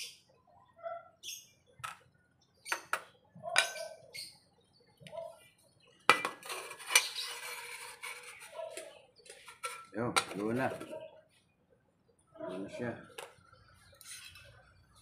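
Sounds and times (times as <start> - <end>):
metal lid clattering: 6.1 - 10.9
wooden spatula scraping metal tin: 6.1 - 10.9.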